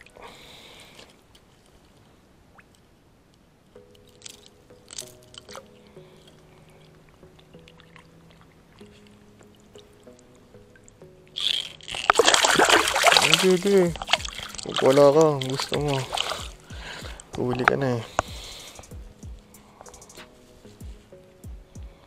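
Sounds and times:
soft background music: 0:00.0 - 0:02.0, 0:02.6 - 0:22.0
water splashes and drips: 0:06.8 - 0:10.2, 0:10.8 - 0:18.4.

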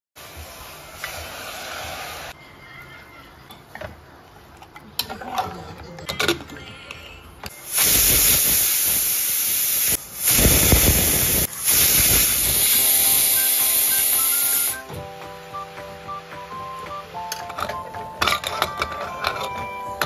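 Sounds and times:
pressure cooker whistling steam: 0:07.5 - 0:15.0
soft background music plucked notes: 0:12.6 - 0:20.0.

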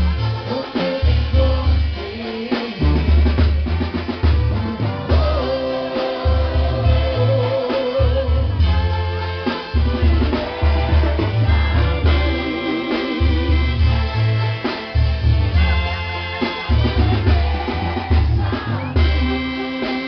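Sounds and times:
heavy bass and drums: 0:00.0 - 0:20.0
trumpets: 0:00.0 - 0:20.0.

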